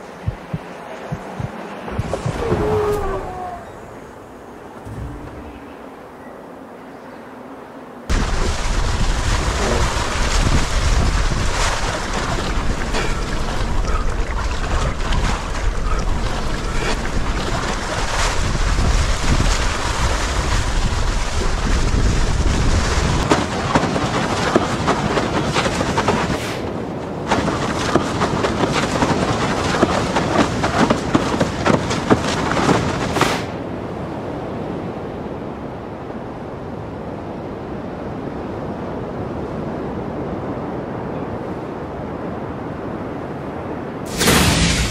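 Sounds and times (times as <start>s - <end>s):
surf and breaking waves: 0.0s - 44.9s
wind rumbling on microphone: 0.0s - 44.9s
crackling spray: 8.1s - 23.3s, 44.1s - 44.9s.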